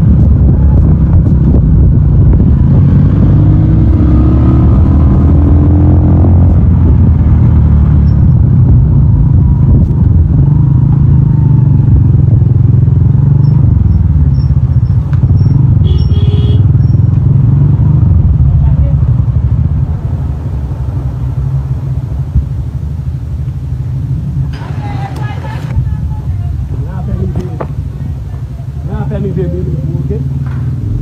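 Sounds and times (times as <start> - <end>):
motor vehicle low rumble: 0.0 - 31.0.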